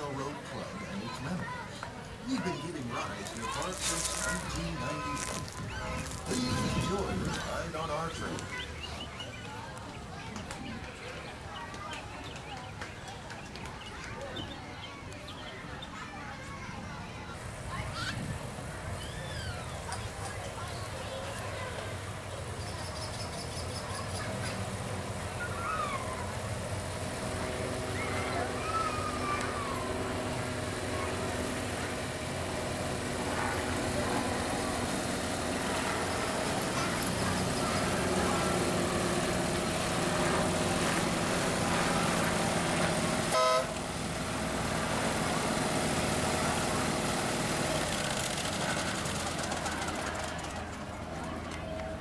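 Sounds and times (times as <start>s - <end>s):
miniature train rumbling on track: 0.0s - 52.0s
short horn toot: 43.3s - 43.7s.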